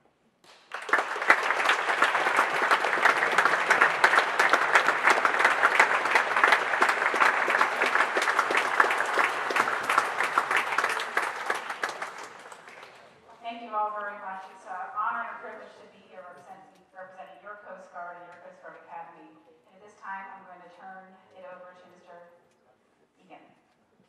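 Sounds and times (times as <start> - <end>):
audience applauding: 0.4 - 13.3.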